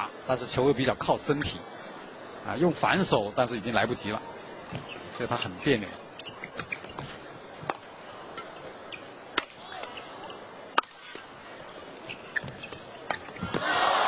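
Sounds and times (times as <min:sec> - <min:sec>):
arena crowd noise: 0:00.0 - 0:14.0
rackets hitting shuttlecock: 0:09.3 - 0:11.3.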